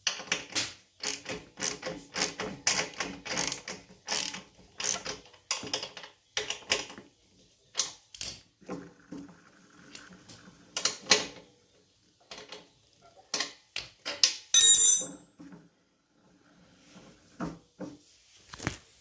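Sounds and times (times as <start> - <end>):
wrench clanging on concrete floor: 14.6 - 15.4.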